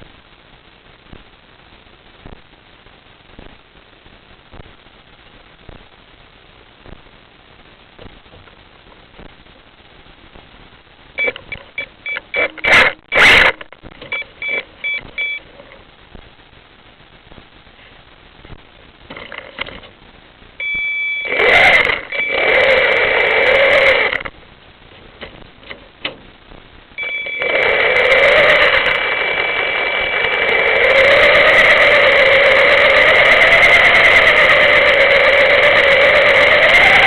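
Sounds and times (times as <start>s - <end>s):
small vehicle motor running: 21.3s - 24.3s, 27.0s - 37.0s.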